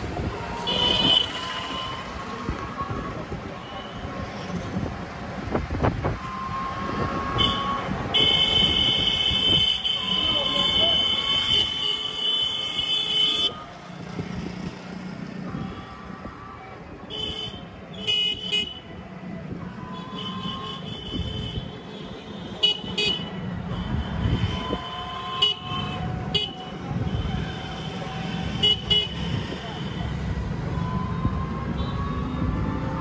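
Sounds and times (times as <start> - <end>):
road noise rumble: 0.0 - 33.0
vehicle horns honking: 0.6 - 2.2, 6.3 - 13.7, 17.1 - 18.9, 19.8 - 30.2.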